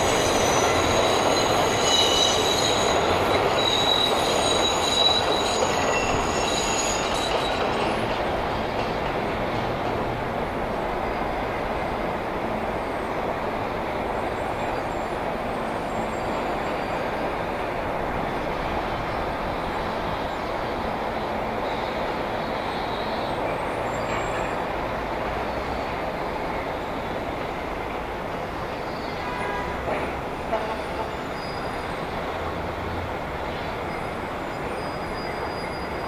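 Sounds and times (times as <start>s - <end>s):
elevated trains rumbling on steel: 0.0s - 36.0s
street traffic: 0.0s - 36.0s.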